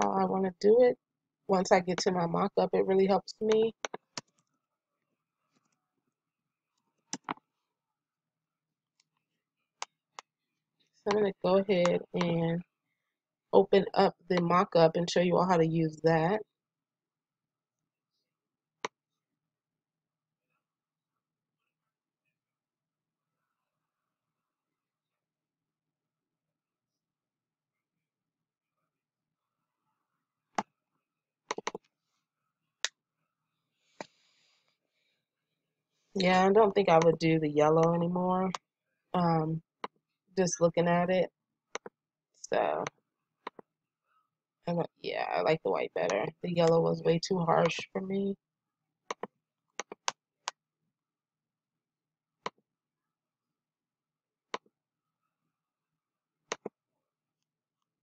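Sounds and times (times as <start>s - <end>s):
computer mouse clicking: 31.5s - 31.8s, 49.1s - 50.1s, 56.5s - 56.7s.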